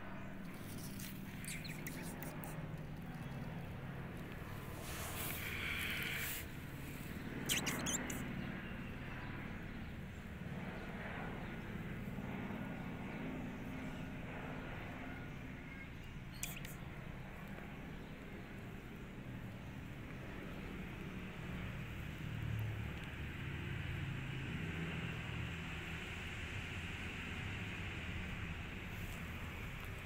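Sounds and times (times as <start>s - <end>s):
low outdoor rumble: 0.0s - 30.0s
sharp clicks: 7.5s - 8.2s, 16.3s - 16.8s.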